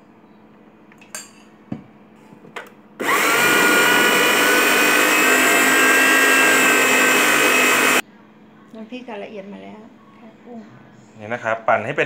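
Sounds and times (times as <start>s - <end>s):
food processor motor whining: 3.0s - 8.0s.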